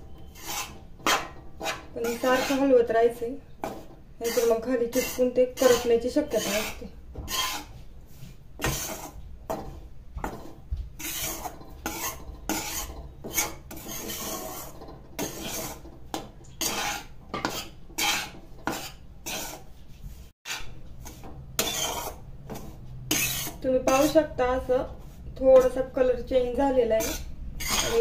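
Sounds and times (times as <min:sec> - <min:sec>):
metal spatula scraping metal pan: 0:00.0 - 0:19.8, 0:20.4 - 0:28.0.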